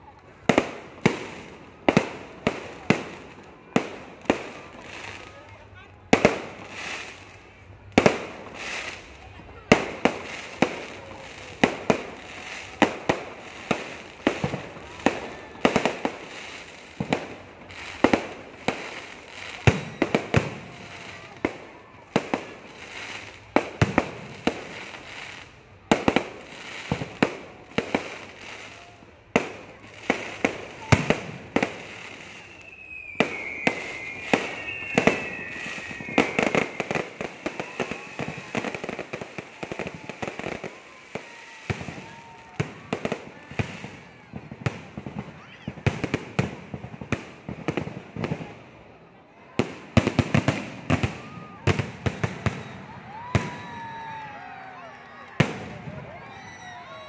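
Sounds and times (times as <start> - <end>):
firework crackling: 0.0 - 57.0
wavering high whistle: 32.3 - 38.4.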